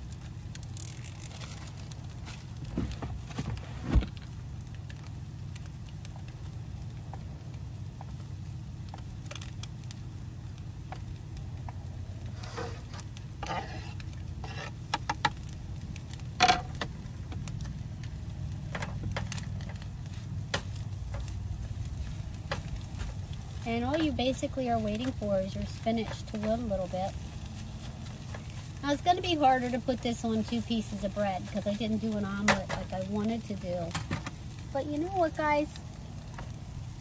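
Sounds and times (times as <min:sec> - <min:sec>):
steady low hum: 0:00.0 - 0:37.0
spatula stirring eggs: 0:10.8 - 0:16.0
knife scraping cutting board: 0:12.4 - 0:14.7.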